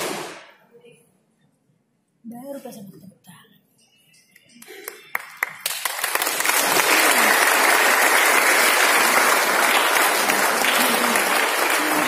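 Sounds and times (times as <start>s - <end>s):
audience applause: 4.7s - 12.0s.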